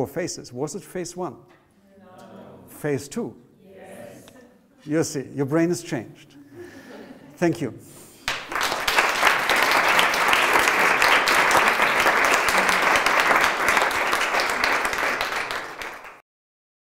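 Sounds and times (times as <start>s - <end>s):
audience applauding: 8.2s - 16.2s.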